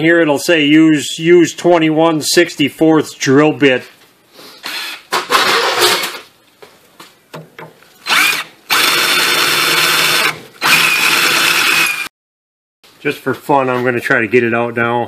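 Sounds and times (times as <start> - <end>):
drill motor whining: 4.6 - 5.6, 8.0 - 12.1.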